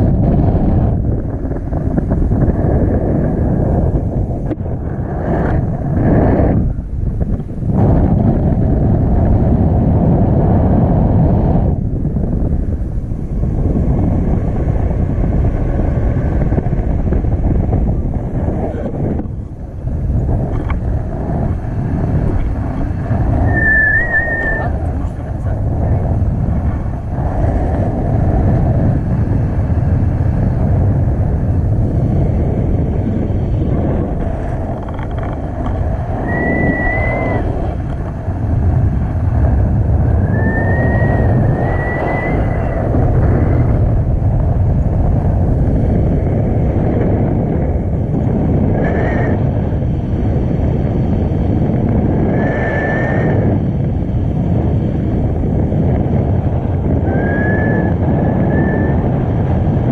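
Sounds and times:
wind buffeting microphone: 0.0s - 59.9s
high whistle-like tones: 23.4s - 24.8s, 36.2s - 37.5s, 40.2s - 42.8s.

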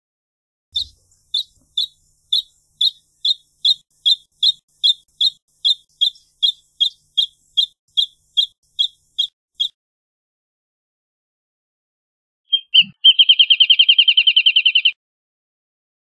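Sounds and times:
bird singing repeated note: 0.8s - 9.7s, 12.5s - 15.0s.

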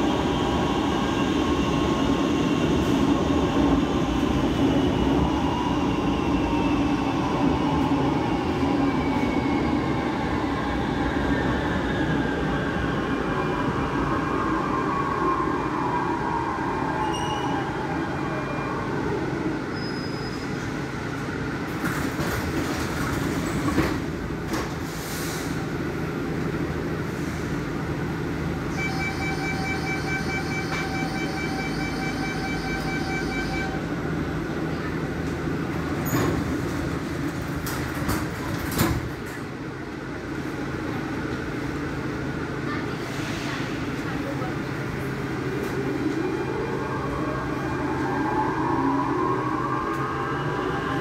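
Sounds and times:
beeping warning tone: 28.8s - 33.8s.

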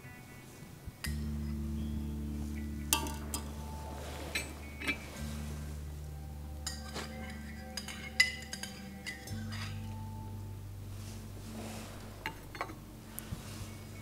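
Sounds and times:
low held music score: 0.0s - 14.0s
spoon clinking against a bowl: 6.6s - 10.0s.

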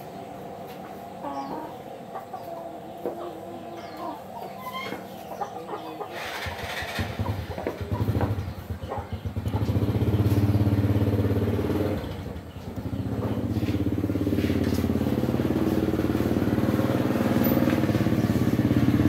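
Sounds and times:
small motorcycle engine running: 6.2s - 19.0s.

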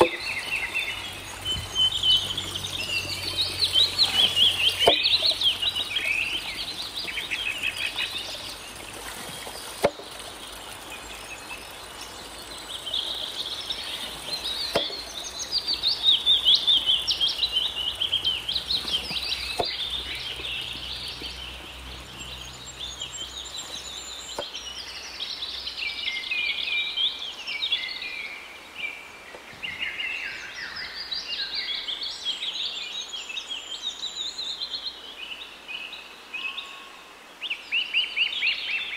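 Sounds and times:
water trickling from pipe: 0.0s - 24.6s
birds chirping and singing: 0.0s - 34.6s.

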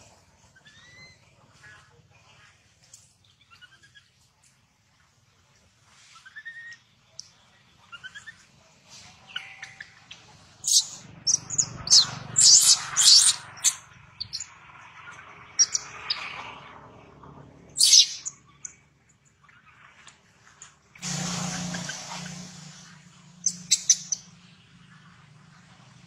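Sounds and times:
baby monkey screaming: 0.6s - 1.2s, 10.6s - 14.4s, 15.6s - 16.3s, 17.8s - 18.3s, 23.4s - 24.2s.

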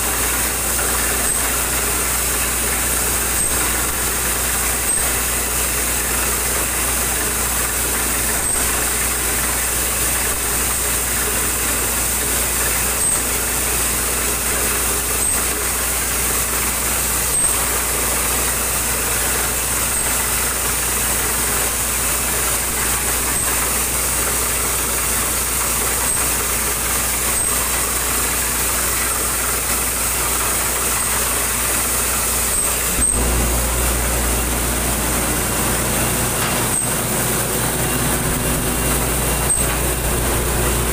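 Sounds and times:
drilling rig engines droning: 28.7s - 40.9s.

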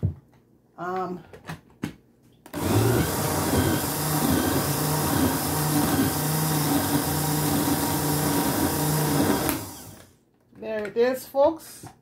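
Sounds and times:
blender motor running: 2.5s - 10.1s.

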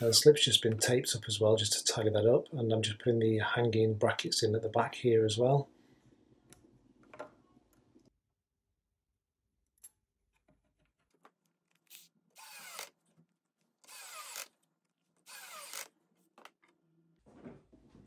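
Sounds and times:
cordless screwdriver motor: 11.9s - 12.9s, 13.8s - 14.5s, 15.3s - 15.9s.

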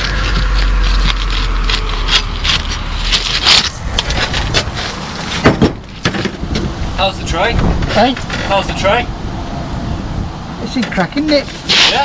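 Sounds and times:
low rumble: 6.4s - 10.5s.

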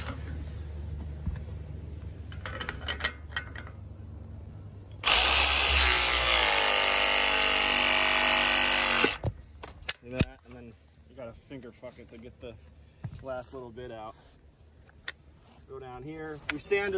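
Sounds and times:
press tool motor whining: 5.0s - 9.2s.

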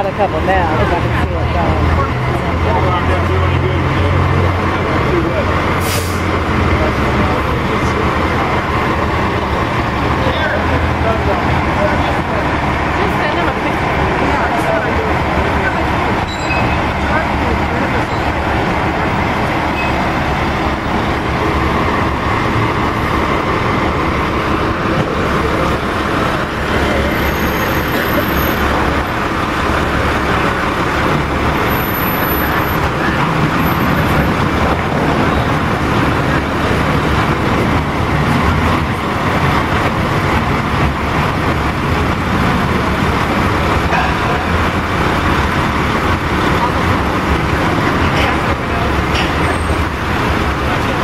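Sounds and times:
diesel engine running: 0.0s - 51.0s.

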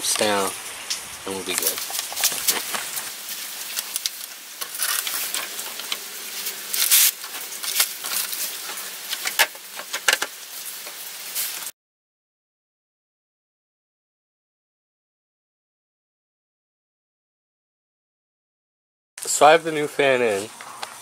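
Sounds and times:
steady hiss: 0.0s - 11.7s, 19.2s - 21.0s.

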